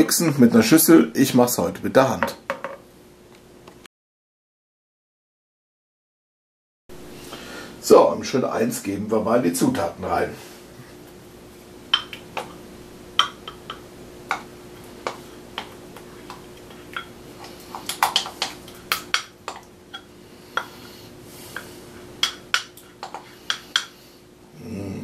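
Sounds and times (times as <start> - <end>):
spoon scraping a bowl: 15.0 - 24.0.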